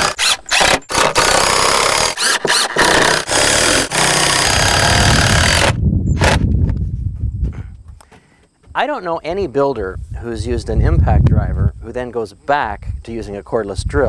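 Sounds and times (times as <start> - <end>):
impact driver driving screw: 0.0 - 6.4.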